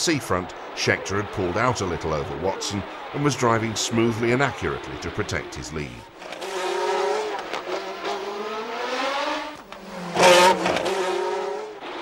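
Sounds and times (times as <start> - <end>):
racing car engines at speed: 0.0 - 12.0
racing car passing close by: 6.2 - 12.0.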